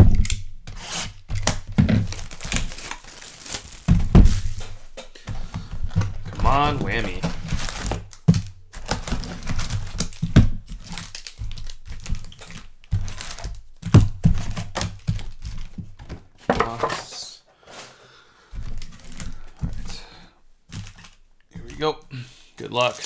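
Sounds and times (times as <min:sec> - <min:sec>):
packaging crinkling and tearing: 0:00.1 - 0:04.8, 0:05.8 - 0:15.8, 0:18.6 - 0:19.9, 0:20.7 - 0:21.8, 0:22.7 - 0:23.0
cardboard thunks: 0:01.3 - 0:02.7, 0:03.7 - 0:10.6, 0:13.0 - 0:17.1.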